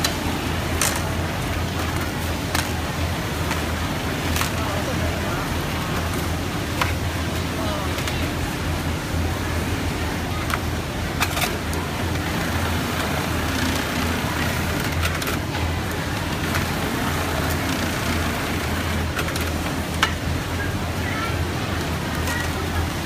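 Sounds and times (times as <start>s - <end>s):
sewing machines running: 11.0s - 23.0s.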